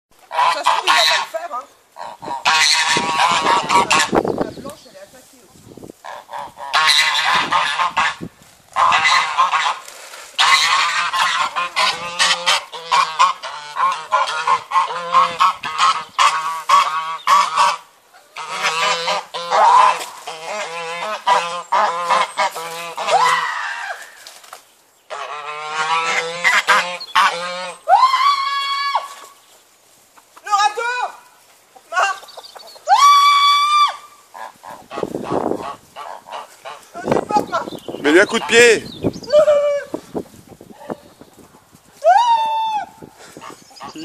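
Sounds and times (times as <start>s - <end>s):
chickens and roosters squawking: 0.2s - 4.4s, 6.0s - 24.4s, 25.1s - 44.0s.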